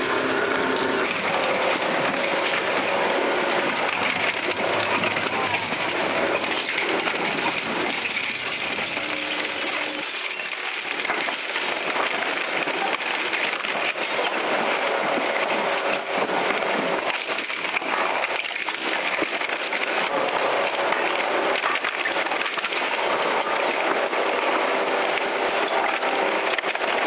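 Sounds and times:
shredder crunching metal: 0:00.0 - 0:10.0.

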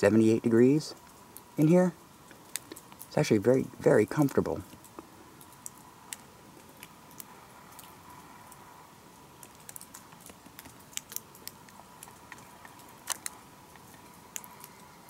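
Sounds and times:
faint high hum: 0:00.0 - 0:15.0
small clicks and ticks: 0:02.2 - 0:03.3, 0:04.1 - 0:08.7, 0:09.3 - 0:15.0.

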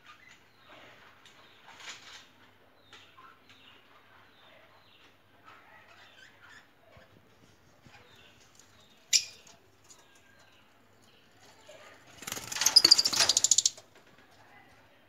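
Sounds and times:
birds chirping and twittering: 0:02.8 - 0:13.8.

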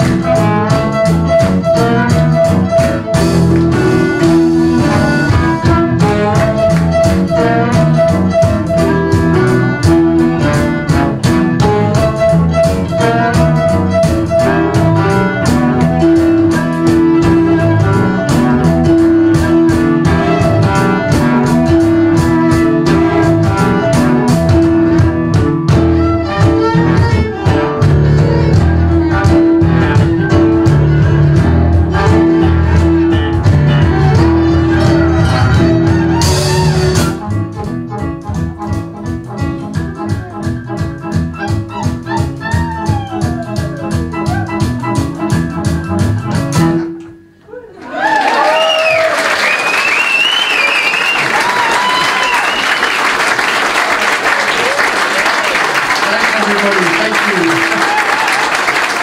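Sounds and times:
violin: 0:00.0 - 0:37.3
wind instrument: 0:00.0 - 0:46.9
acoustic guitar: 0:00.0 - 0:47.6
acoustic band playing: 0:00.0 - 0:59.0.

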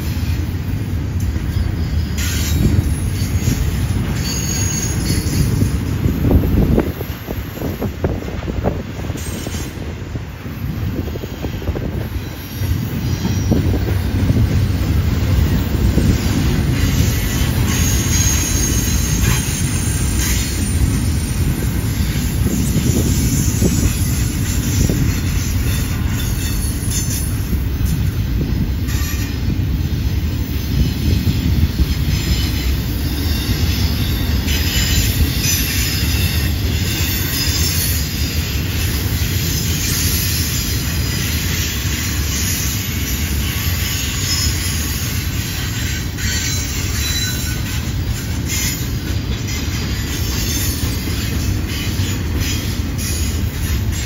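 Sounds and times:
train clanks: 0:00.0 - 0:54.0
train wheels rumbling on rail: 0:00.0 - 0:54.0
wheel squeal: 0:01.5 - 0:06.8, 0:16.0 - 0:28.1, 0:31.8 - 0:54.0.

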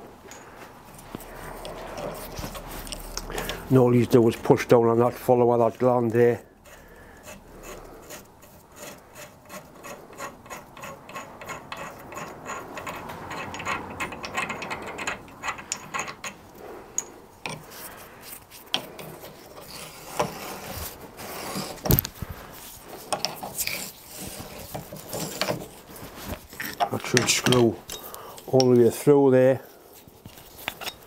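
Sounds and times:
metal grating on metal: 0:00.9 - 0:29.8
spanner clicks and knocks: 0:09.8 - 0:17.7, 0:26.6 - 0:28.8.

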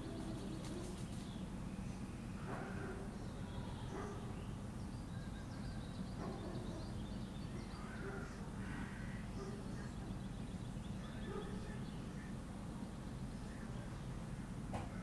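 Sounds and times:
crows cawing: 0:07.8 - 0:09.4.

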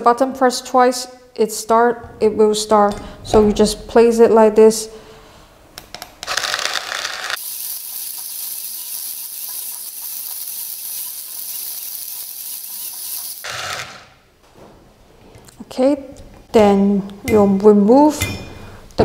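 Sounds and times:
coffee grinder grinding beans: 0:06.2 - 0:14.2.

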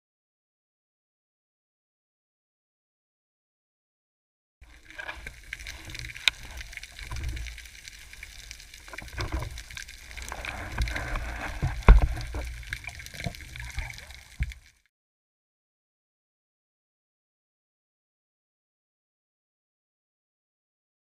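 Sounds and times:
underwater hiss and rumble: 0:04.6 - 0:14.9.

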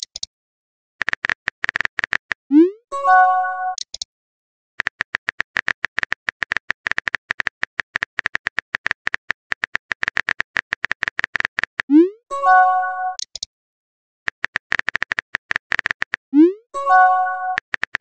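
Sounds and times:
rapid keyboard tap clicks: 0:01.0 - 0:02.4, 0:04.8 - 0:11.9, 0:14.3 - 0:16.2, 0:17.5 - 0:18.0
message sent chime: 0:02.9 - 0:03.8, 0:12.0 - 0:13.2, 0:16.8 - 0:17.6.

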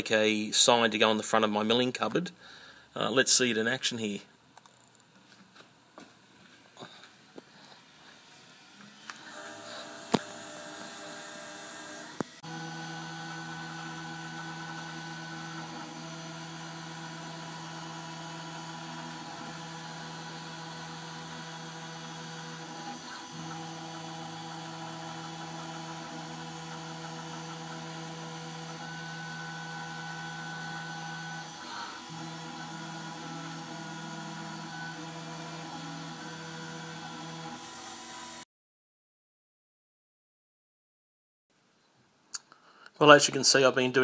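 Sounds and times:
desktop mill whine and hum: 0:04.6 - 0:38.4.

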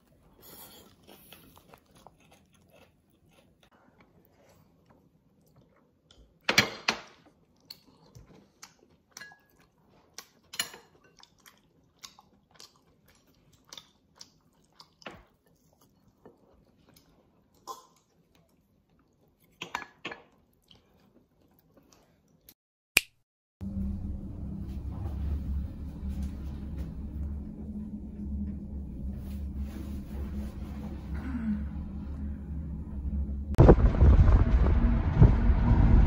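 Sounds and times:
person chewing: 0:00.0 - 0:06.4, 0:07.4 - 0:19.6, 0:20.3 - 0:22.6.

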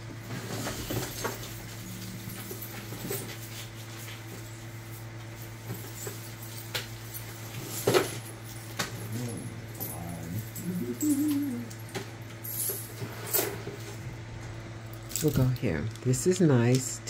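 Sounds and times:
low hum: 0:00.2 - 0:04.6, 0:08.5 - 0:12.8.

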